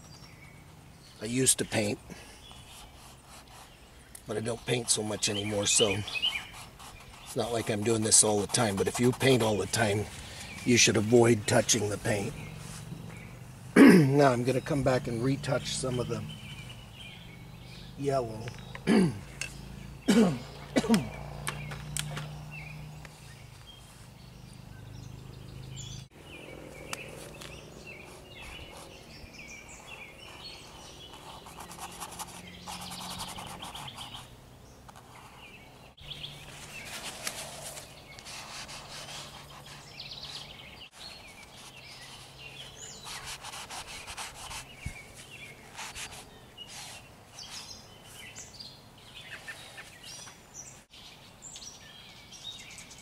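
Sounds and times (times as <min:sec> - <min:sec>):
rapid bird trills: 0:00.0 - 0:13.6, 0:14.2 - 0:50.8
birds chirping: 0:00.0 - 0:53.0.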